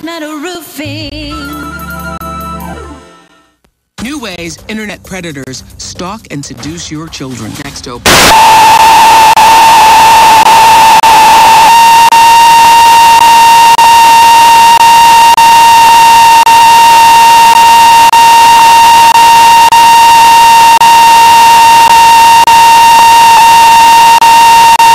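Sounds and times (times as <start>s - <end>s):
tv static hiss: 4.0s - 24.9s
steady high whine: 8.1s - 24.9s.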